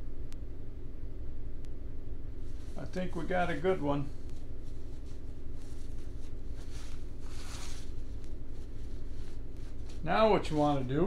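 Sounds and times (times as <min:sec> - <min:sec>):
steady low hum: 0:00.0 - 0:11.0
paper towel rubbing tire tread: 0:02.5 - 0:11.0.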